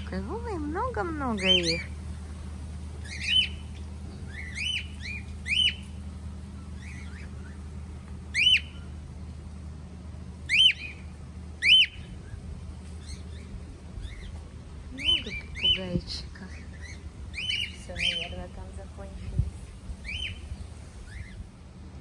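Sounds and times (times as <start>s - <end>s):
steady low hum: 0.0s - 22.0s
parrots squawking: 1.4s - 2.0s, 3.0s - 6.0s, 8.3s - 8.9s, 10.5s - 11.0s, 11.6s - 12.4s, 15.0s - 15.9s, 16.5s - 18.4s, 20.0s - 21.4s.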